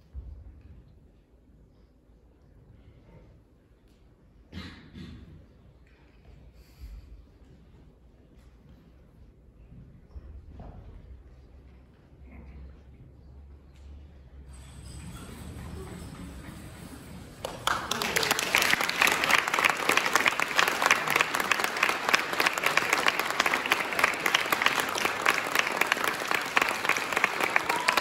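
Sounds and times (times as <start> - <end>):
audience applause: 15.8 - 28.0.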